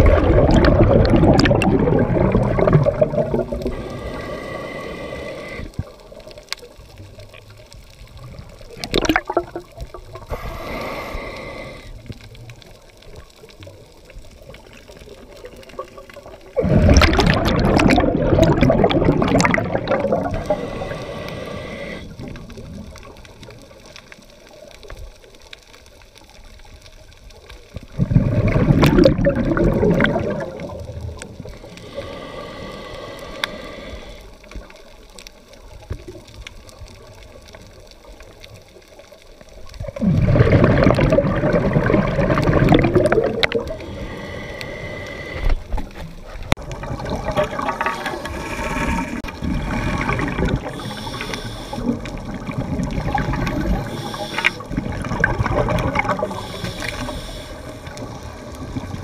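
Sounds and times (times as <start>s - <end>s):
gurgling exhaled bubbles: 0.0s - 23.9s, 27.6s - 34.9s, 39.5s - 59.0s
regulator inhalation hiss: 3.6s - 6.0s, 10.3s - 12.1s, 20.2s - 22.2s, 31.5s - 34.5s, 43.6s - 45.8s, 50.6s - 52.0s, 53.6s - 54.7s, 56.2s - 58.1s.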